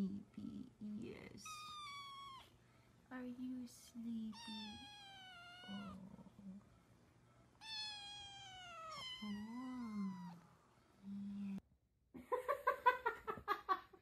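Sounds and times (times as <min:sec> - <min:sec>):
kitten meowing: 0:01.4 - 0:02.5, 0:04.3 - 0:06.0, 0:07.6 - 0:10.4
low hum: 0:09.0 - 0:11.6.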